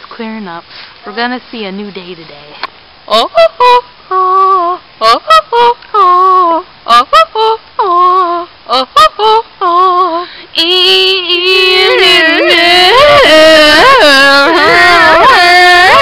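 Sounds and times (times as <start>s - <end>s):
girl singing wordless notes: 3.1s - 16.0s.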